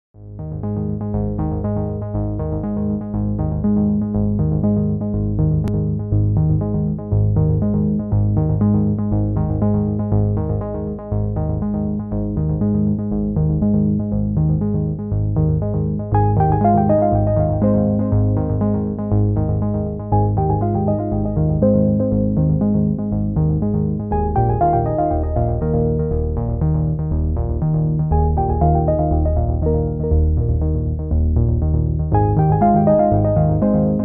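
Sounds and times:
electronic synthesizer music: 16.2 - 27.4, 28.0 - 34.0.

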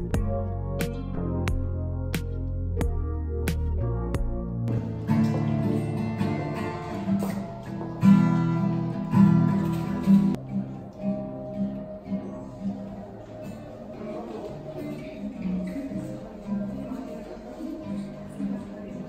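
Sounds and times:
acoustic guitar strumming: 3.9 - 19.0.

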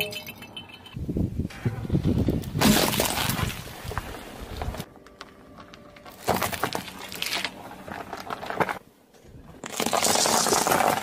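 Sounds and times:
tyre crunching chocolates: 4.9 - 8.8, 9.6 - 11.0
tyre crunching foil-wrapped sweets: 9.6 - 11.0.

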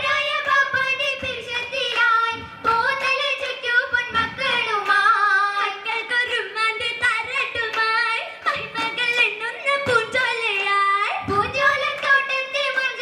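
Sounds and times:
girls singing in unison: 0.0 - 13.0
hand-claps: 0.0 - 13.0.

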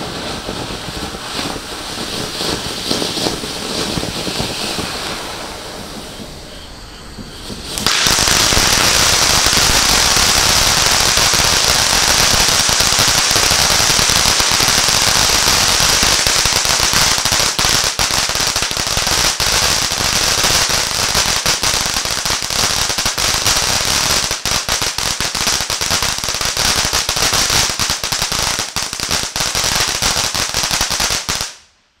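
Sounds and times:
firework fountain hissing: 0.0 - 31.7
crackling pops: 7.2 - 14.6.

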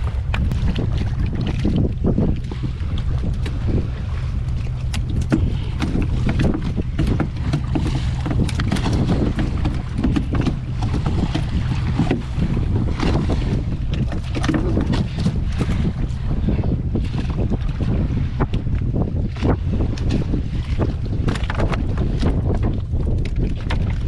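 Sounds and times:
boat engine running: 0.0 - 24.0
wind buffeting microphone: 0.0 - 24.0
knocks and slaps of fishing: 4.5 - 15.9, 18.4 - 24.0.

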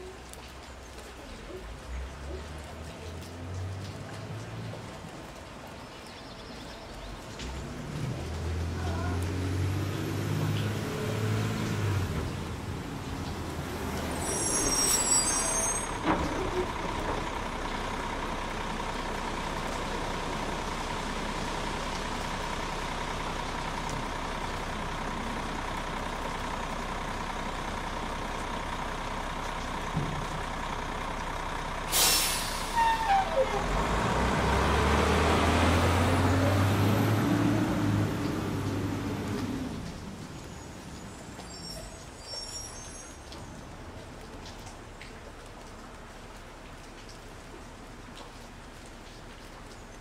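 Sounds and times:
rain falling into water: 0.0 - 50.0
air brake hiss: 31.9 - 32.8.

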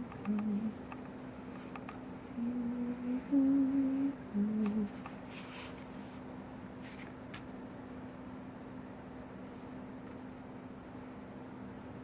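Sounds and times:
person humming a short tune: 2.4 - 5.0
paintbrush swishing on paper: 5.2 - 7.1.

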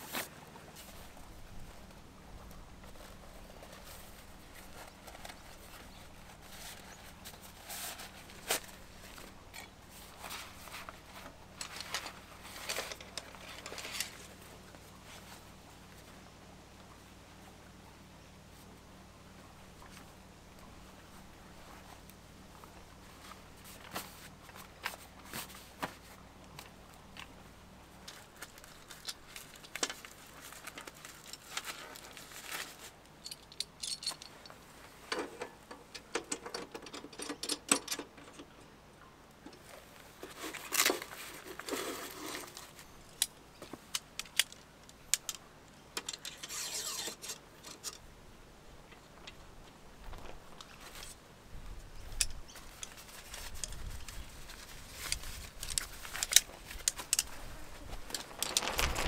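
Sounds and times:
metallic clinks and rattles: 33.2 - 34.6.

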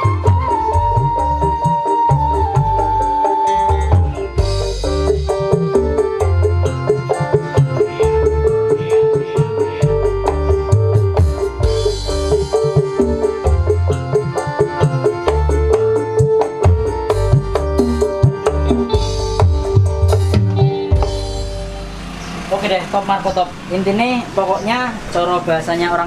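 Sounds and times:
keyboard melody: 0.0 - 25.2
drums: 0.0 - 25.4
heavy pulsing bass line: 0.0 - 26.0.

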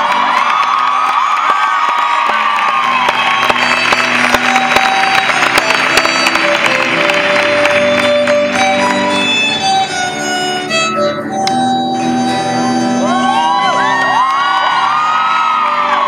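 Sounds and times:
audience whistling: 0.0 - 16.0
crowd noise: 0.0 - 16.0
bowed violin melody: 3.3 - 15.8.

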